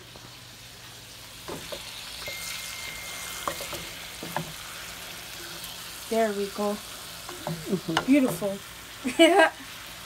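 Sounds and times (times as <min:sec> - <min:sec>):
steak sizzling in a pan: 0:00.0 - 0:10.0
wooden spatula knocking on pan: 0:07.4 - 0:08.5.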